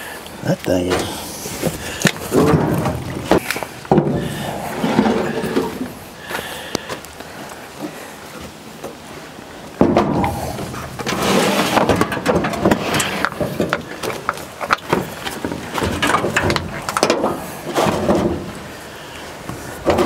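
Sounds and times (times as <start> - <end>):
hand tools and metal parts clanking: 0.4 - 6.4, 9.8 - 18.6.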